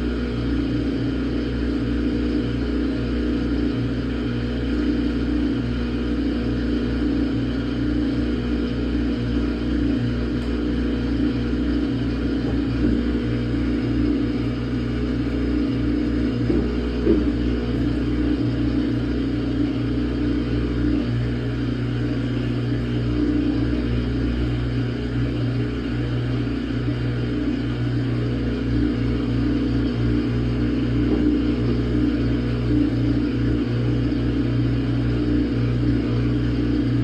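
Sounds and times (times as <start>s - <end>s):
washing machine rumble and hum: 0.0s - 37.0s
washing machine knock: 12.3s - 13.2s, 16.4s - 17.5s.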